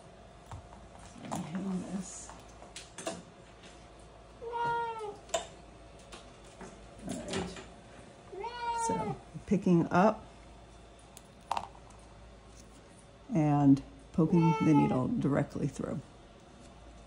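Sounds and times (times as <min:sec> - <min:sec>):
cat meowing: 0:04.4 - 0:05.2, 0:08.3 - 0:09.2, 0:14.4 - 0:15.0.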